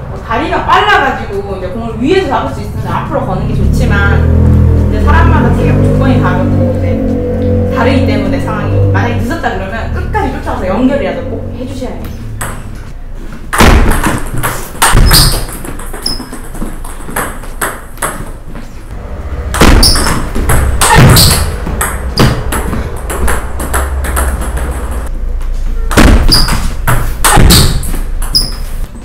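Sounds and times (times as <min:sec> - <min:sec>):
ball bouncing on table: 0:13.5 - 0:18.4, 0:19.6 - 0:25.1, 0:25.9 - 0:28.6
table tennis ball hits: 0:13.5 - 0:18.4, 0:19.5 - 0:25.1, 0:25.9 - 0:28.7.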